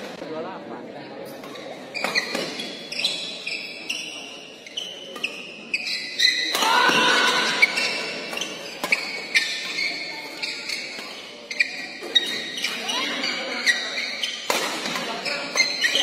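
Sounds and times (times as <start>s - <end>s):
shoes squeaking on court: 1.4s - 16.0s.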